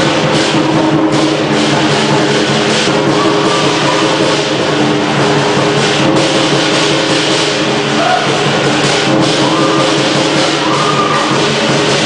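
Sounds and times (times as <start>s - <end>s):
cymbals crashing: 0.0s - 12.0s
gong: 0.0s - 12.0s
lion dance drum: 0.0s - 12.0s.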